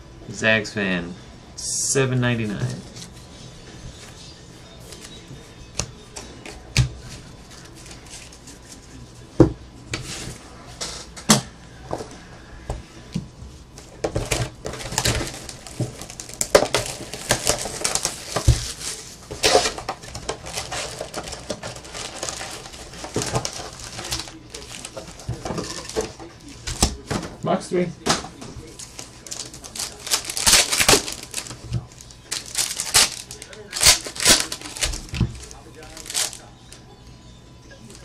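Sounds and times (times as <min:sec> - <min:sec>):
plastic wrap crinkling: 0:13.8 - 0:36.7.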